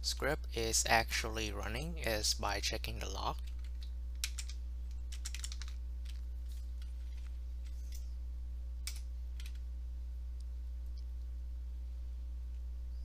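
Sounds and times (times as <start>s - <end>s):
low electrical hum: 0.0s - 13.0s
computer keyboard keystrokes: 3.4s - 6.2s, 8.8s - 9.6s.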